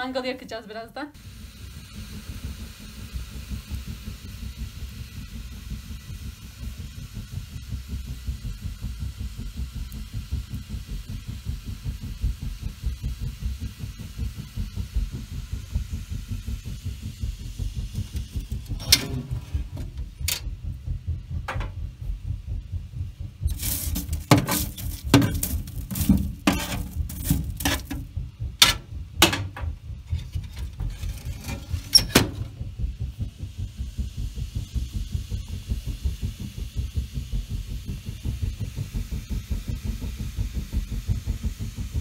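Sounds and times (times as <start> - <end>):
stove fire rumbling: 0.0 - 42.0
sharp clicks and knocks: 17.9 - 20.8, 21.4 - 22.0, 23.4 - 32.6.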